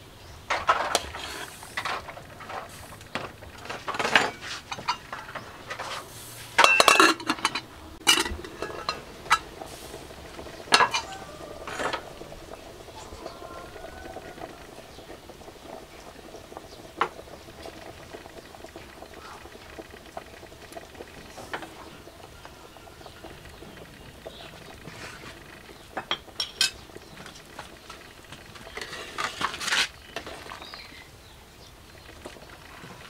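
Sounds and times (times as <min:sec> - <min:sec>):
soup boiling: 0:00.0 - 0:33.0
metal ladle scraping a pot: 0:00.6 - 0:02.9, 0:03.6 - 0:13.8, 0:24.3 - 0:26.8, 0:27.9 - 0:31.0.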